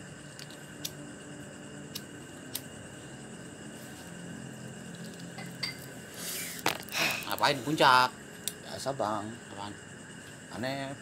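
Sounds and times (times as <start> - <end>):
faint hum and hiss: 0.0 - 11.0.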